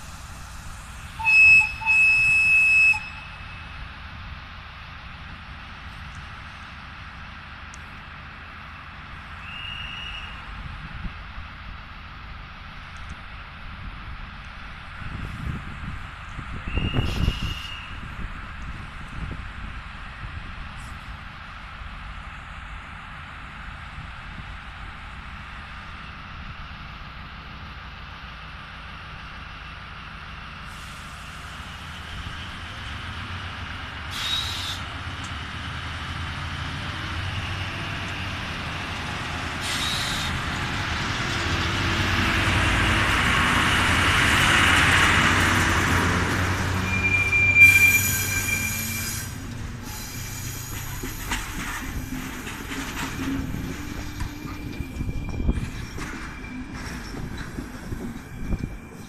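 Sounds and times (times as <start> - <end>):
diesel locomotive engine: 0.0 - 59.0
passenger coaches rolling by: 0.0 - 59.0
wheel squeal: 16.7 - 18.0, 46.7 - 59.0
coach wheels clicking over track: 50.6 - 59.0.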